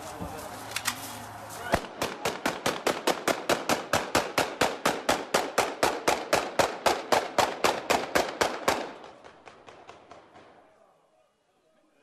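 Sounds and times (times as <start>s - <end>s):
automatic gunfire: 1.8s - 10.5s.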